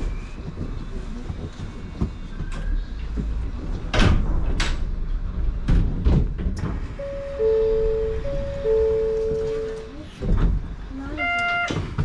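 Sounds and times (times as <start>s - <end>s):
two-note electronic door chime: 7.0s - 9.9s.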